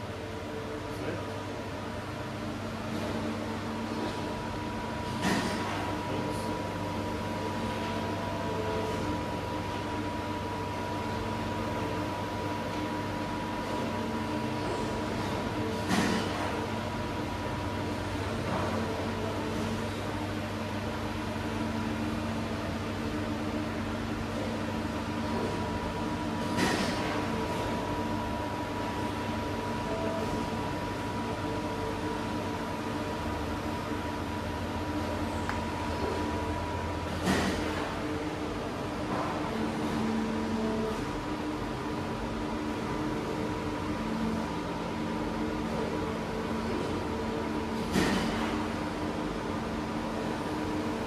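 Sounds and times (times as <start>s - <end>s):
machine humming with low tones: 0.0s - 51.0s.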